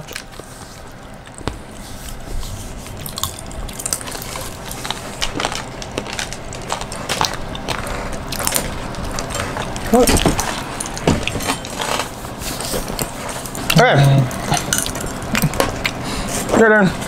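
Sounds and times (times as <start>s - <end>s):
popping candy crackling: 0.0s - 12.1s.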